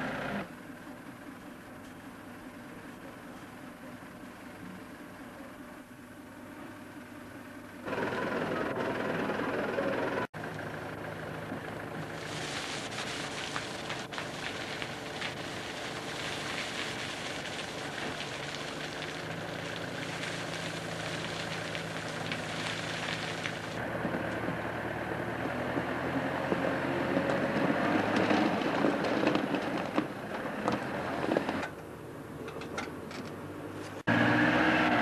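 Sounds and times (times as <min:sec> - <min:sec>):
diesel engine running: 0:00.0 - 0:35.0
gravel pouring from bucket: 0:12.2 - 0:23.8.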